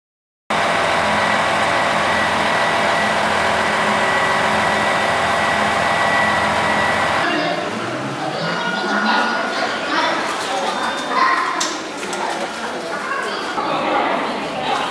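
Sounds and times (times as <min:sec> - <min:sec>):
diesel train engines idling: 0:00.5 - 0:09.6.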